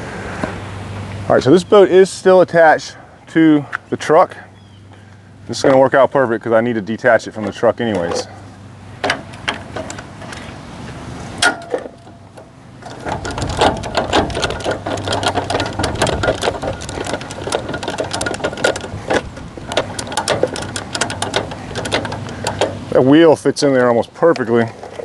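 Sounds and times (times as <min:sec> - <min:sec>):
jack cranking clicks: 0:11.4 - 0:23.0.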